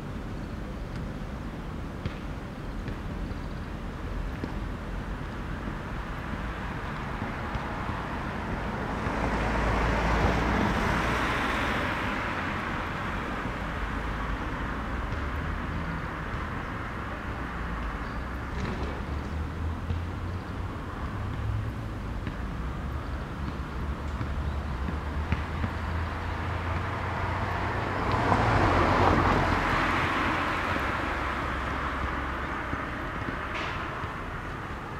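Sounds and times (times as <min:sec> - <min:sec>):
road vehicle passing: 0:06.1 - 0:34.9
vehicle passing by: 0:08.4 - 0:12.7, 0:24.3 - 0:33.2.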